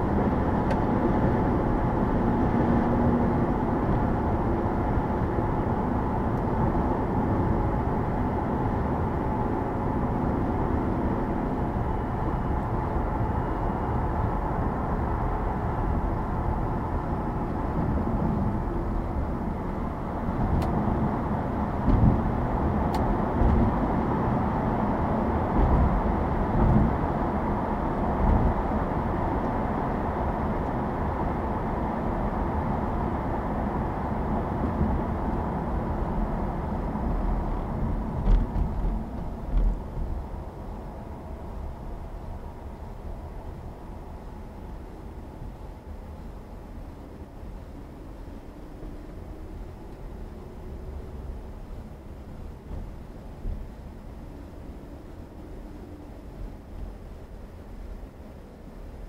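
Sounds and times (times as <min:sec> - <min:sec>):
car road and tyre noise: 0:00.0 - 0:59.0.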